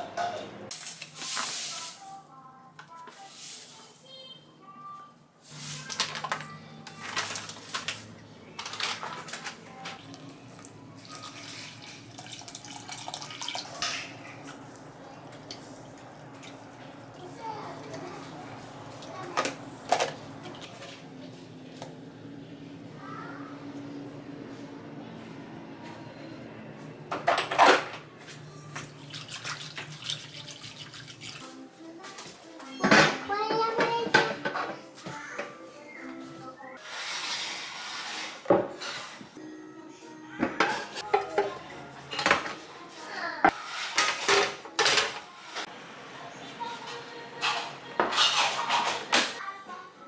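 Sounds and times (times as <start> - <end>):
water pouring into metal bowl: 10.6 - 14.1, 28.9 - 31.4.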